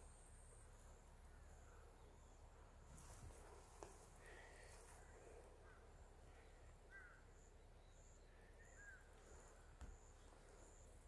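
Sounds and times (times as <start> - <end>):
soft bird chirps: 0.0 - 11.0
insect chirping: 4.3 - 11.0.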